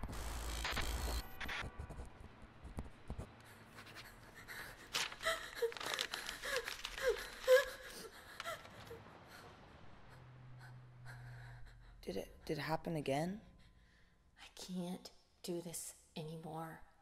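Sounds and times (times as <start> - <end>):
person sobbing: 4.1 - 9.5.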